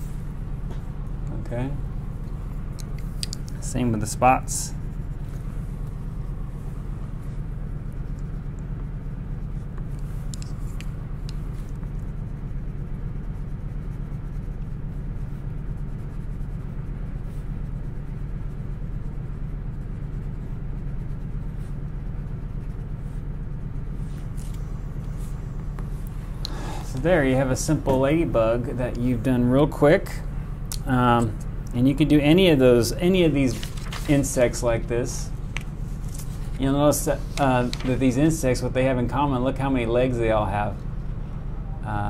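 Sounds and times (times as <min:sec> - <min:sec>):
steady low hum: 0:00.0 - 0:42.0
coloured pencil scratching on paper: 0:03.6 - 0:06.2, 0:06.8 - 0:25.8.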